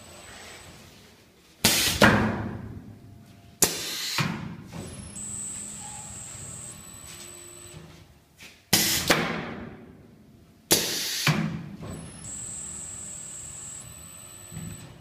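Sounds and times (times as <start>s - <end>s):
cutting blade knock with air hiss: 3.6s - 4.4s, 8.7s - 9.3s, 10.7s - 11.5s.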